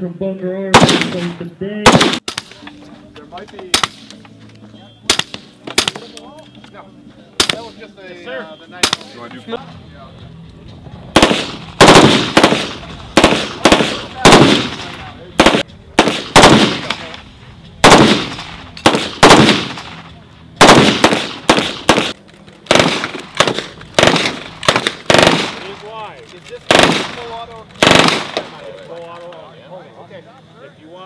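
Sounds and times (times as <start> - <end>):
gunshots with echo: 0.7 - 2.6, 11.1 - 17.2, 17.8 - 20.0, 20.6 - 25.8, 26.7 - 28.6.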